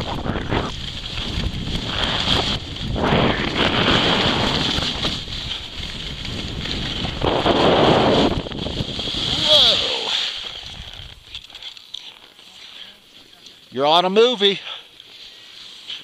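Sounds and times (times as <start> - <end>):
wind rushing over microphone: 0.0 - 11.2
skis scraping over snow: 0.0 - 14.1.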